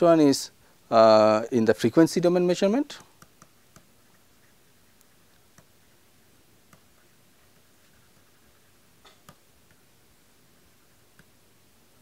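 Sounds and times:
pen clicks while writing: 0:03.1 - 0:04.2, 0:05.0 - 0:05.8, 0:06.7 - 0:09.8.

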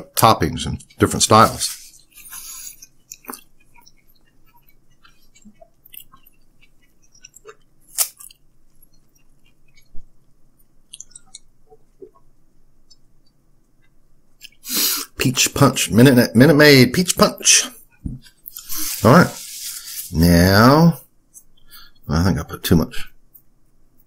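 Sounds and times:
person chewing pizza: 0:01.8 - 0:12.2.

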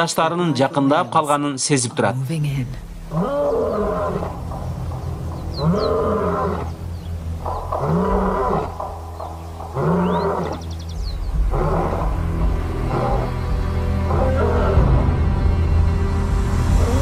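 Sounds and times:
lion roaring: 0:03.0 - 0:15.2.

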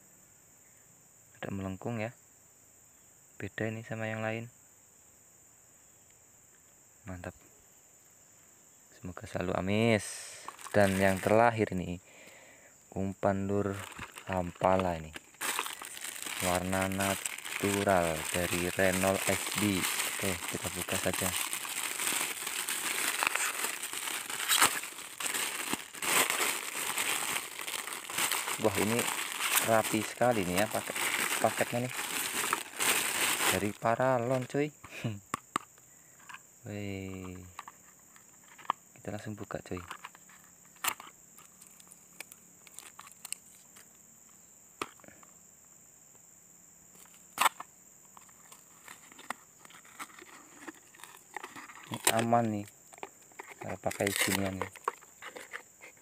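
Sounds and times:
plastic packaging crinkling: 0:10.0 - 0:11.6, 0:13.6 - 0:34.5, 0:41.6 - 0:43.5, 0:48.5 - 0:55.6.

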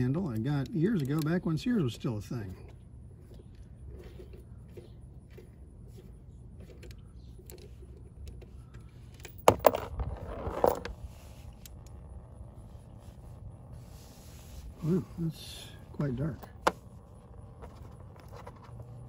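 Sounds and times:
light metal clicks: 0:00.0 - 0:01.5.

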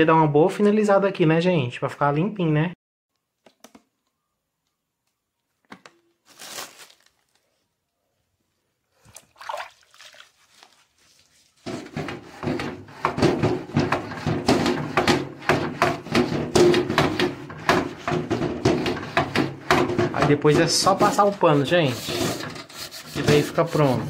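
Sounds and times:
faint handling sounds: 0:10.2 - 0:11.7
sponge scrubbing shutter slats: 0:11.6 - 0:24.0.

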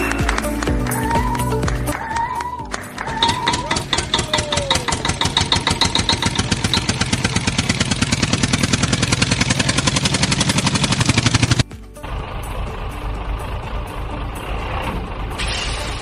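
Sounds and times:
tractor engine chugging: 0:03.0 - 0:16.0.

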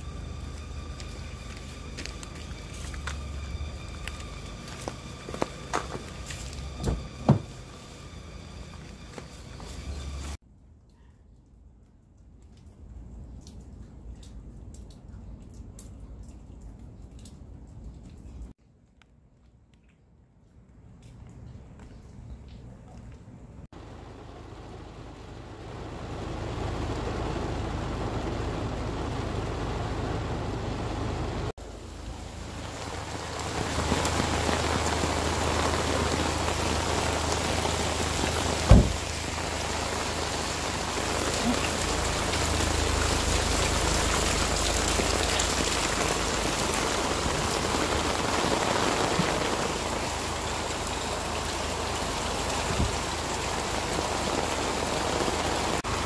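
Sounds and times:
steady rain falling: 0:00.0 - 0:18.6, 0:20.8 - 0:56.0
low steady hum: 0:19.8 - 0:56.0.

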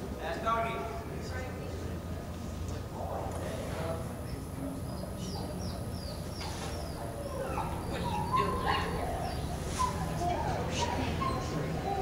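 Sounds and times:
steady low hum: 0:00.0 - 0:12.0
dog barking and yipping: 0:07.2 - 0:12.0.

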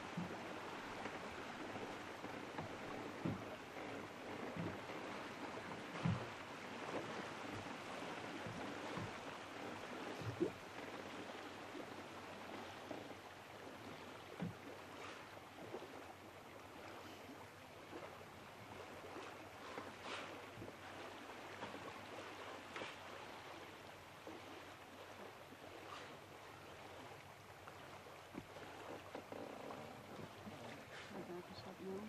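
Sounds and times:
soft low knocks: 0:00.0 - 0:07.8, 0:08.4 - 0:11.0
gentle water lapping: 0:00.0 - 0:32.0.

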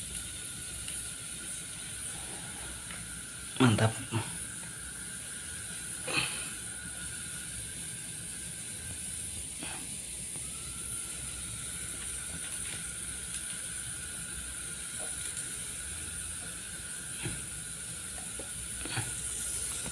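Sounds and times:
television hiss: 0:00.0 - 0:19.9
thin steady whine: 0:00.0 - 0:19.9.

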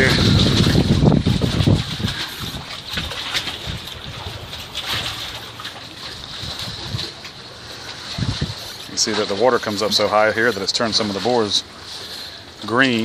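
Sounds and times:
wind buffeting microphone: 0:00.0 - 0:10.6
water lapping against pilings: 0:00.0 - 0:13.0
footsteps on wooden planks: 0:00.2 - 0:10.2.

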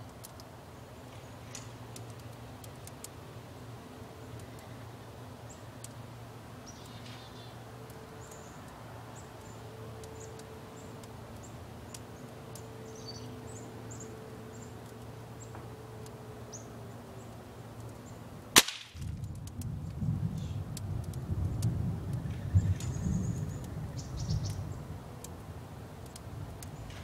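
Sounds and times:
pellet gun shot: 0:18.6 - 0:19.2.

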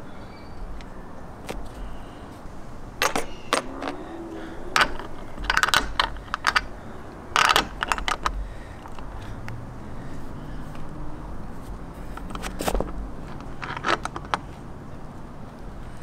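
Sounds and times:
wrench and hardware clinking: 0:03.0 - 0:04.0, 0:04.8 - 0:09.1, 0:12.2 - 0:14.4.

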